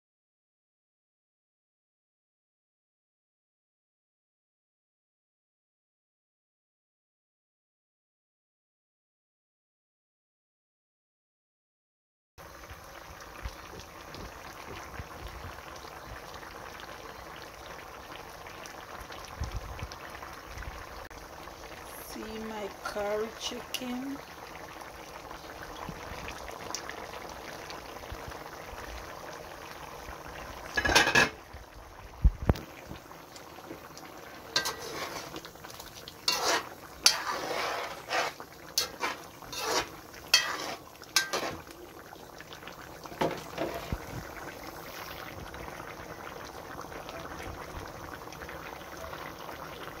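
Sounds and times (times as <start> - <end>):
stew bubbling in a pot: 12.4 - 50.0
utensil scraping a pot: 34.5 - 35.5, 36.2 - 41.7, 43.2 - 44.0.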